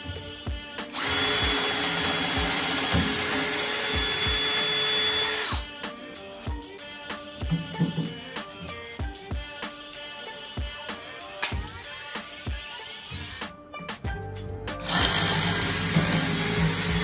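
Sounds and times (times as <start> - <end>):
background music with beat: 0.0 - 17.0
cordless drill cutting wood: 0.9 - 5.7, 14.8 - 17.0.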